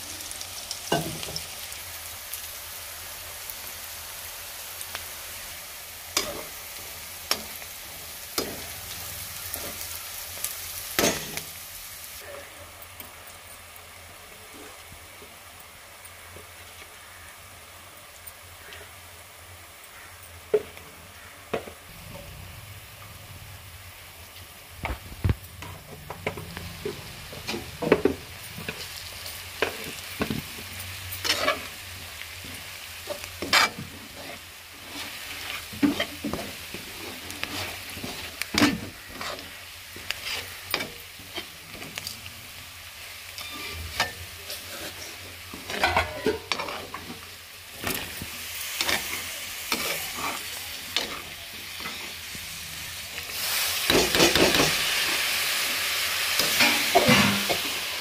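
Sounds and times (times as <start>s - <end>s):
onions sizzling in oil: 0.0s - 58.0s
steel spatula scraping a pan: 31.2s - 31.8s, 33.1s - 41.6s, 43.4s - 47.2s, 56.4s - 57.8s.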